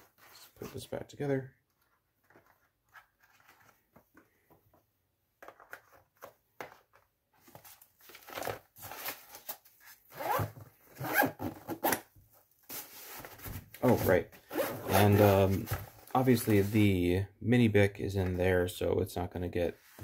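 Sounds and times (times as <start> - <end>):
zipper pulled shut: 10.1 - 12.0, 14.5 - 15.2.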